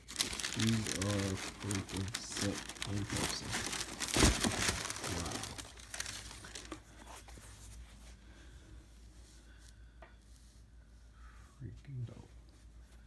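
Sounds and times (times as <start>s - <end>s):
tissue paper crinkling: 0.0s - 7.8s.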